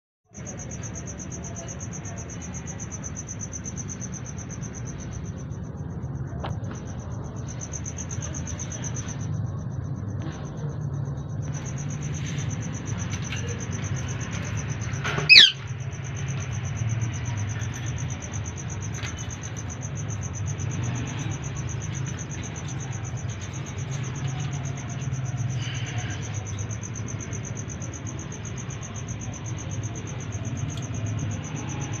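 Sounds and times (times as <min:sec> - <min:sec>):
cricket chirping: 0:00.3 - 0:32.0
short squeak: 0:15.0 - 0:15.6.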